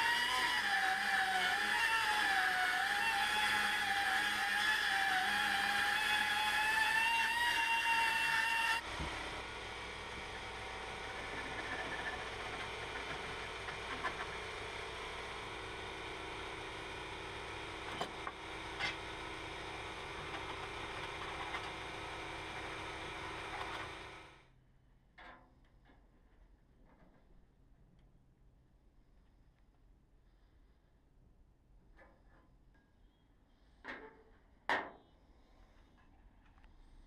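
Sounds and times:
die grinder whining on steel: 0.0 - 24.4.

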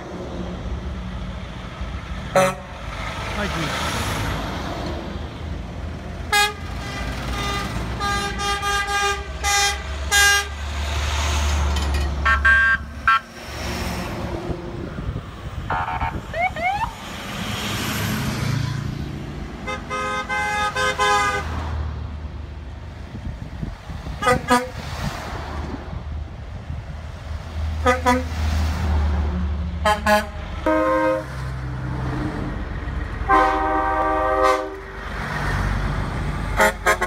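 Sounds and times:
diesel engines rumbling: 0.0 - 37.0
truck horns blasting: 2.3 - 2.9, 6.3 - 10.7, 12.2 - 13.4, 15.7 - 16.2, 19.6 - 21.6, 24.2 - 24.8, 27.8 - 28.4, 29.8 - 31.5, 33.2 - 35.0, 36.5 - 37.0.

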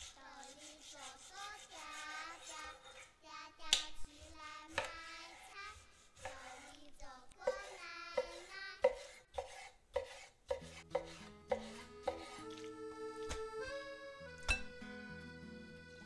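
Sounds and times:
knife knocking on cutting board: 7.5 - 12.3
background music: 10.6 - 16.0.

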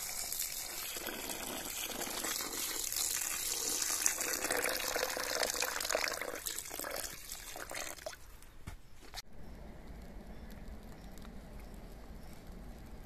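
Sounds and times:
water pouring into pot of liquid: 0.0 - 8.2.

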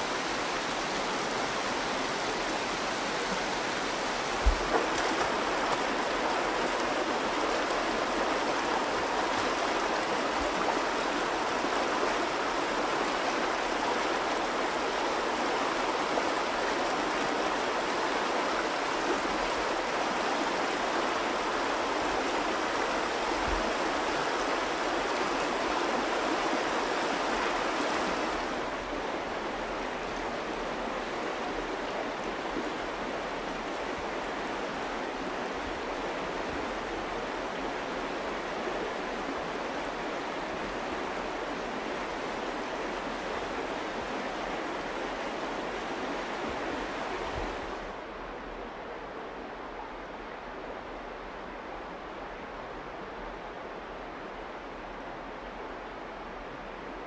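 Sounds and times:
river water rushing over rock: 0.0 - 57.0.

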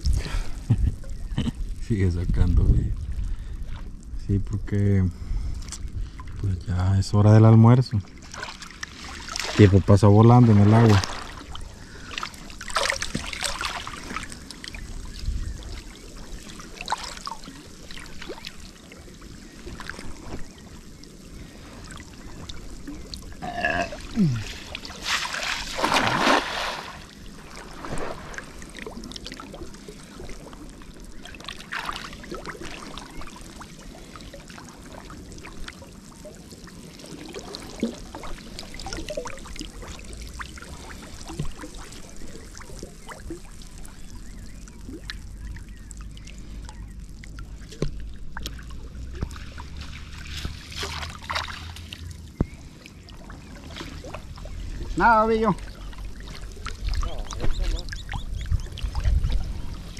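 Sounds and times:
water splashing and trickling: 0.0 - 59.9.

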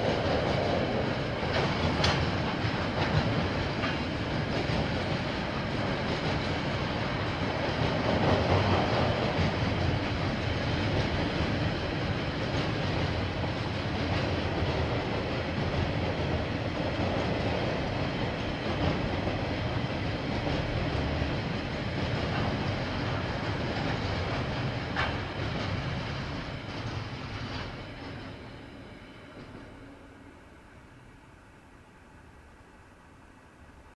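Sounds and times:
train wheels rolling on rails: 0.0 - 33.9.

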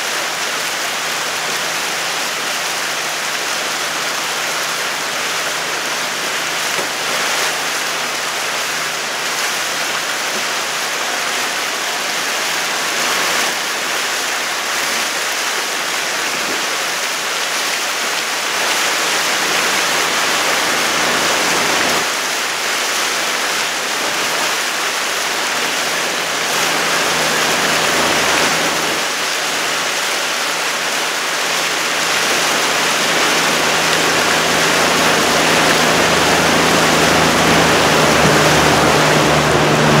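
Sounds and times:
water and wind rushing: 0.0 - 40.0
low motor hum: 18.8 - 22.1, 25.3 - 30.0, 31.6 - 40.0.

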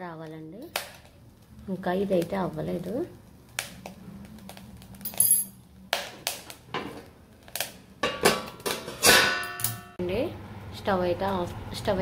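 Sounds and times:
steel lid clanking on iron pot: 8.0 - 9.9.

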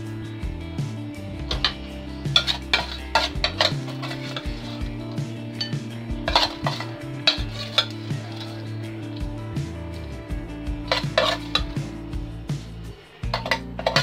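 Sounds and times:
background music: 0.0 - 14.0
metal spoon scraping tin: 1.5 - 8.7, 10.9 - 11.8, 13.0 - 14.0.

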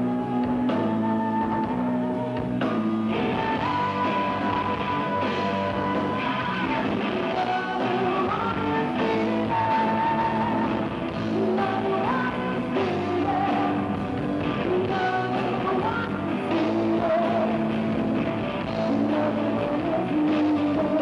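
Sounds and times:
bass guitar: 0.0 - 21.0
drums: 0.0 - 21.0
electric guitar: 0.0 - 21.0
woman singing long notes: 14.6 - 17.7.

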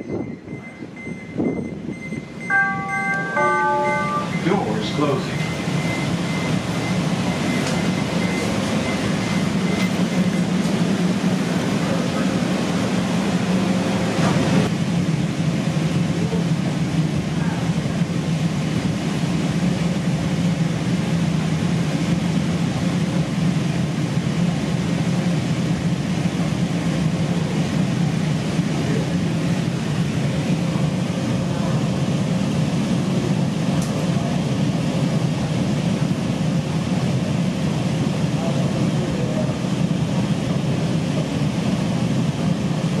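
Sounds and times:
train wheels rumbling on rail: 0.0 - 43.0
faint steady tone: 2.0 - 6.5.

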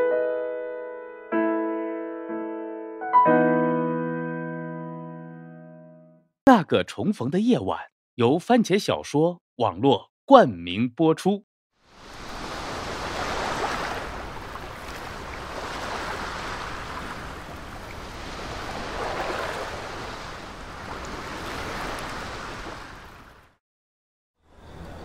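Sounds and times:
small waves washing on sand: 11.8 - 23.5.

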